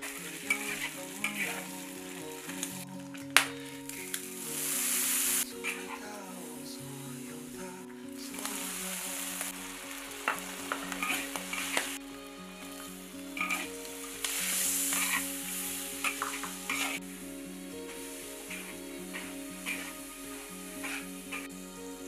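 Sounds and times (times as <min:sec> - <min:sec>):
pork sizzling in hot oil: 0:00.0 - 0:02.8, 0:04.2 - 0:05.8, 0:08.3 - 0:12.1, 0:13.3 - 0:17.1, 0:17.9 - 0:21.5.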